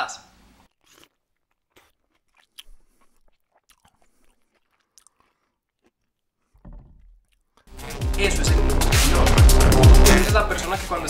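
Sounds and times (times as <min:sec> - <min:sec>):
chewing watermelon crunches: 0:00.6 - 0:07.7.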